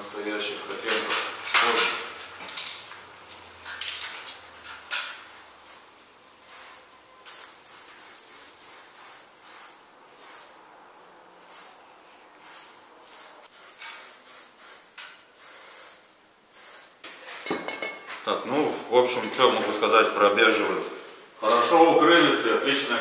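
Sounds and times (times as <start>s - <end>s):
spray paint can hissing: 5.6s - 10.6s, 11.4s - 11.8s, 12.4s - 17.0s.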